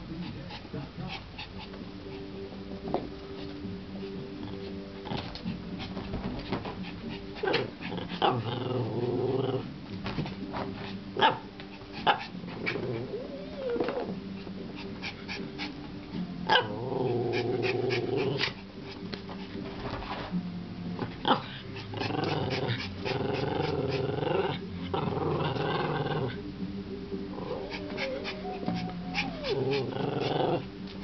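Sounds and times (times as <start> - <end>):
small dog growling: 7.0 - 9.7, 11.9 - 15.8, 16.5 - 18.6, 21.2 - 26.4, 27.3 - 30.7
dog whining: 12.1 - 14.4, 27.3 - 30.7
dog yipping: 27.7 - 29.9.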